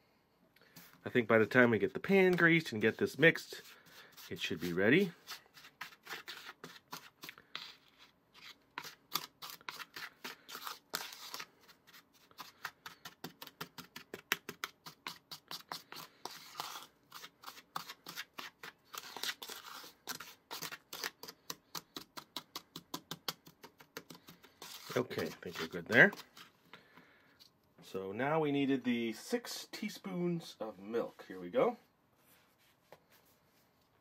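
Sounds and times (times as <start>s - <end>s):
wooden spoon scraping plastic bowl: 2.0s - 22.1s, 23.5s - 27.0s.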